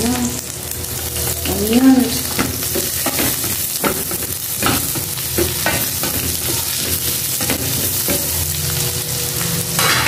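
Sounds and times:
garlic and onions sizzling in oil: 0.0s - 10.0s.

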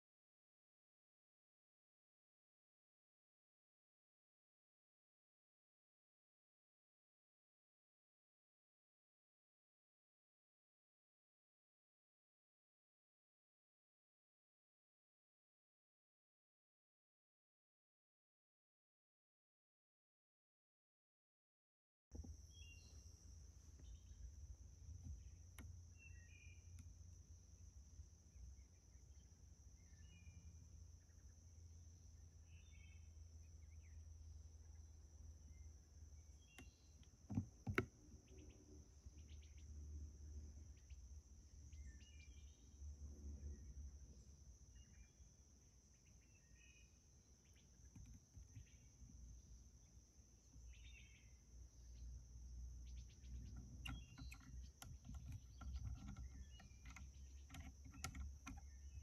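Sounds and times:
insect chorus: 22.2s - 59.0s
bird chirps: 22.4s - 23.1s, 25.1s - 26.9s, 28.3s - 31.4s, 32.2s - 37.1s, 38.2s - 39.8s, 41.6s - 42.8s, 45.9s - 48.9s, 50.6s - 52.2s, 52.8s - 59.0s.

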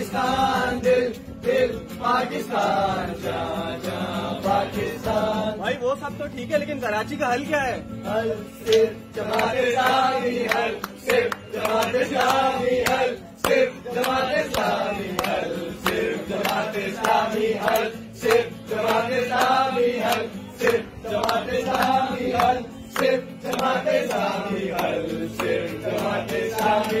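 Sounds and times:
men singing and chanting: 0.0s - 27.0s
strummed acoustic guitar: 0.0s - 27.0s
hand claps: 8.4s - 27.0s.

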